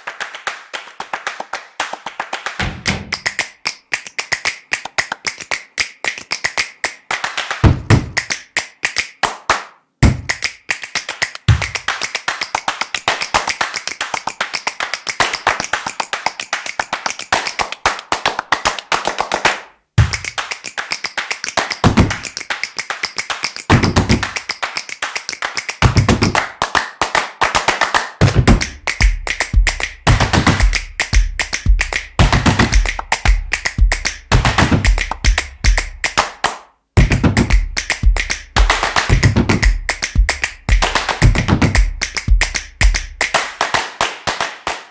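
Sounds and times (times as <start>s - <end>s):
fast percussive taps: 0.3s - 44.9s.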